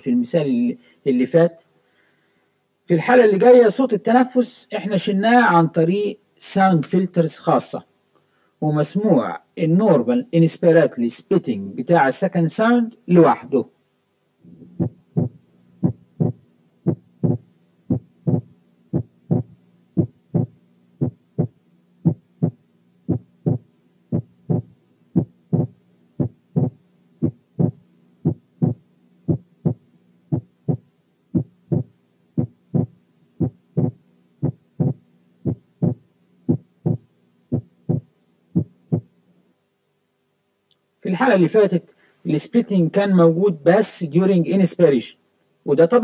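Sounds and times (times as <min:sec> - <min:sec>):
faint steady hum: 0:00.0 - 0:46.0
heartbeat thuds: 0:14.6 - 0:39.1.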